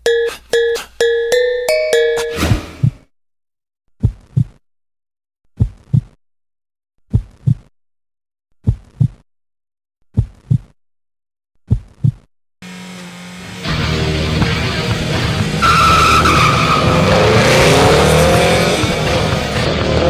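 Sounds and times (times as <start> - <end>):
heartbeat thumps: 11.7 - 12.2.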